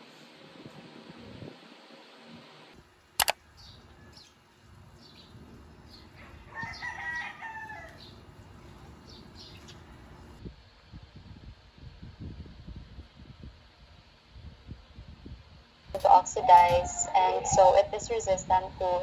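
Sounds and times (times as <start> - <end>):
sharp double click: 3.2 - 3.4
small birds chirping: 3.4 - 10.4
rooster crowing: 6.2 - 8.2.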